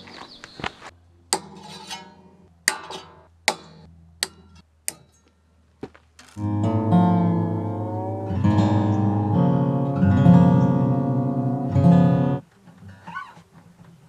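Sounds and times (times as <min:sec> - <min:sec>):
acoustic guitar strummed chords: 0:06.4 - 0:12.4
faint wavering guitar notes: 0:06.4 - 0:12.4.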